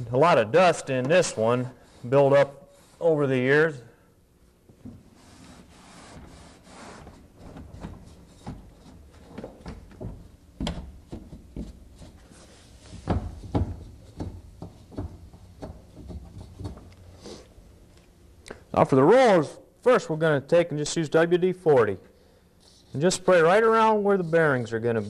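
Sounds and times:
rag rubbing a metal track: 22.8s - 25.0s.

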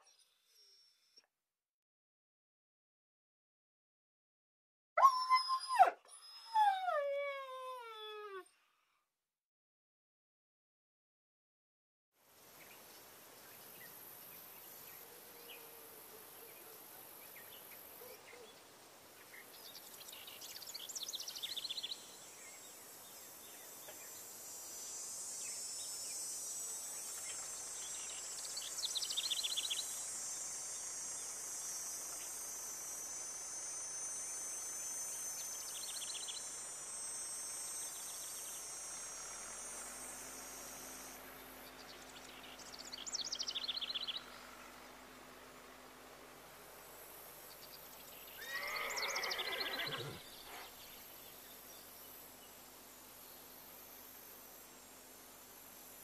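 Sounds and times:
high insect trill: 19.3s - 44.7s, 46.6s - 56.0s
bird calls: 48.3s - 51.0s.

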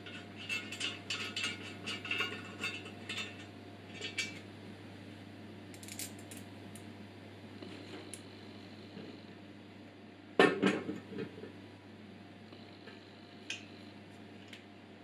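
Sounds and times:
small metal parts clicking: 5.7s - 6.4s.

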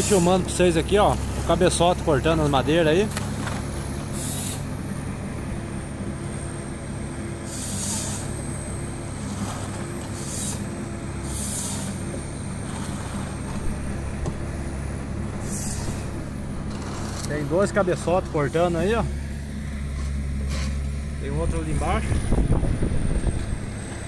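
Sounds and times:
diesel engine droning: 0.0s - 24.0s
saw hissing bursts: 4.1s - 4.7s, 7.4s - 8.3s, 10.2s - 12.0s, 15.4s - 16.0s.

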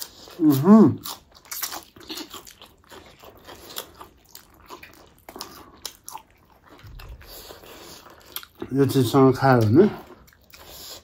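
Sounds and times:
noodles chewed and slurped: 0.0s - 11.0s.

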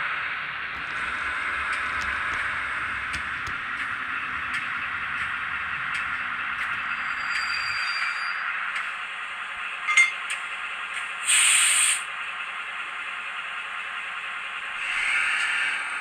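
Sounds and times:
model locomotive engine idle: 0.0s - 16.0s
sharp coupling clink: 9.9s - 10.2s
compressed-air hiss: 11.2s - 12.1s.

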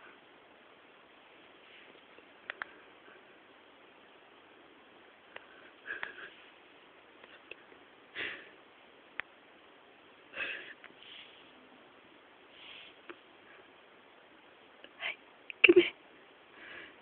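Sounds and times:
faint clicks: 2.0s - 2.8s
breathy sniffs: 10.4s - 11.6s, 12.5s - 13.1s.

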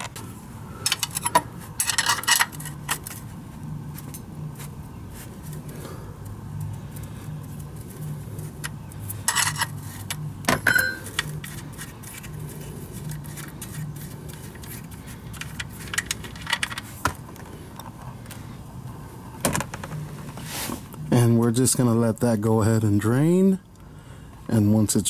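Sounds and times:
low steady hum: 0.0s - 25.0s
metallic ringing ping: 10.6s - 11.0s
wrench clinking on metal: 10.6s - 11.3s.

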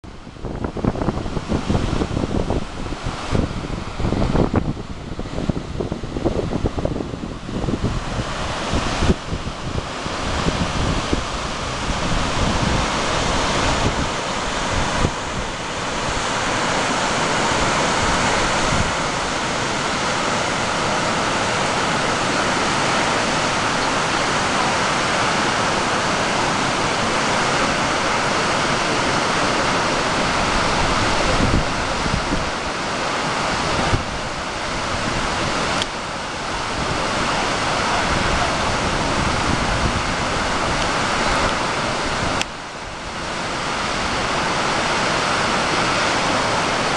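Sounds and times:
waterfall roaring: 0.0s - 46.9s
wind buffeting microphone: 0.0s - 46.9s.

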